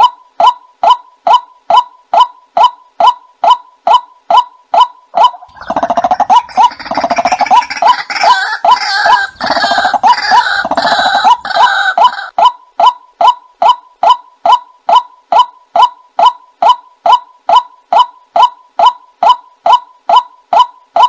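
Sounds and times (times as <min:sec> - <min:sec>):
chorus of gargling bird calls: 0:04.8 - 0:12.3.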